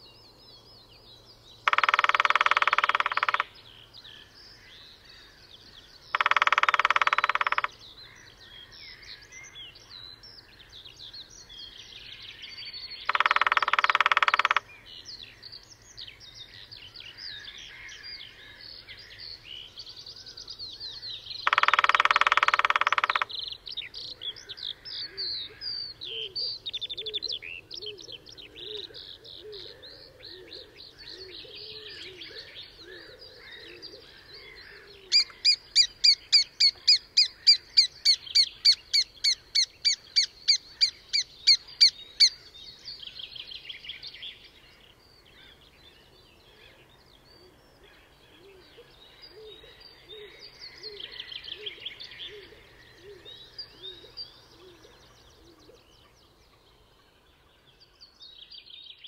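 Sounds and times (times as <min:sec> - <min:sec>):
birdsong: 0:00.0 - 0:59.0
lower repeated bird notes: 0:00.0 - 0:59.0
bird high call notes: 0:01.6 - 0:03.5, 0:06.1 - 0:07.8, 0:13.0 - 0:14.7, 0:21.4 - 0:23.4.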